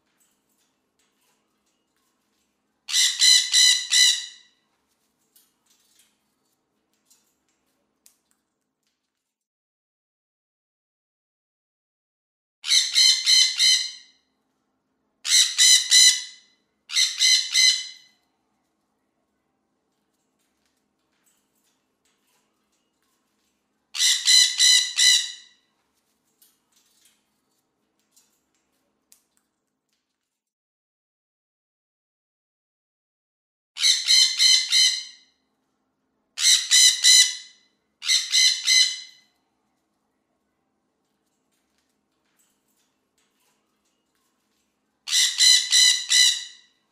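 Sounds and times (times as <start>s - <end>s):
parrot squawking: 2.9s - 4.5s, 12.6s - 14.1s, 15.3s - 18.1s, 24.0s - 25.6s, 33.8s - 35.2s, 36.4s - 39.2s, 45.1s - 46.7s.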